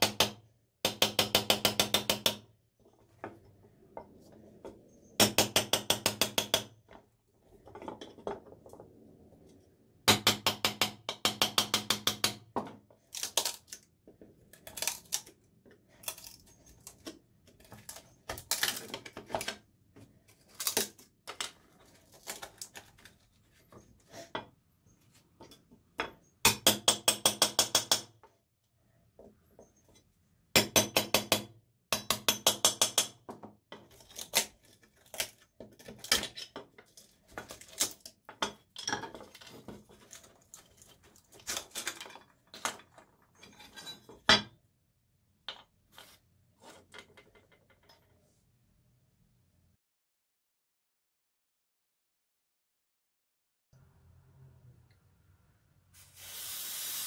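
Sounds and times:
screwdriver scraping and clinking: 38.8s - 44.3s.

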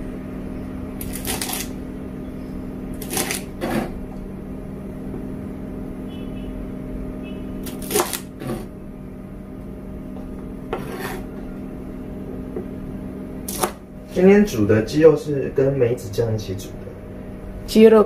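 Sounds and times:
steady low hum: 0.0s - 18.0s
knife chopping on plastic board: 3.0s - 4.0s, 7.7s - 8.7s, 10.7s - 11.2s, 13.5s - 13.8s.

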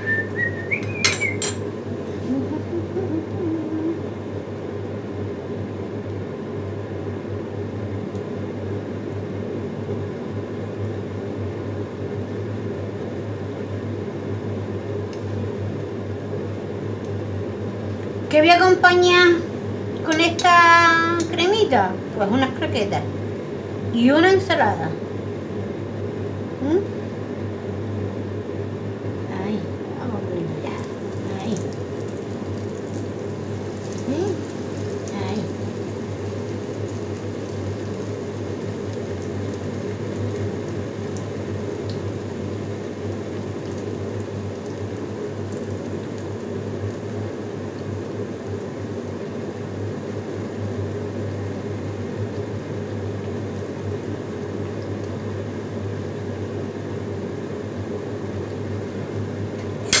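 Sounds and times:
bread sizzling in oil: 0.7s - 2.1s, 30.5s - 60.0s.

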